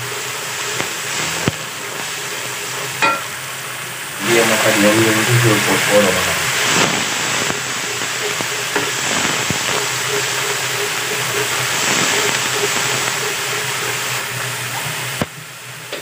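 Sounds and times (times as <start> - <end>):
paste sizzling in hot oil: 0.0 - 16.0.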